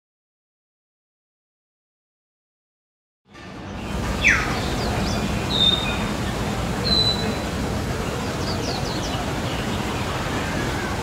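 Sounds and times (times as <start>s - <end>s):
low background noise: 3.3s - 11.0s
myna bird whistling calls: 4.2s - 6.0s, 6.8s - 7.4s.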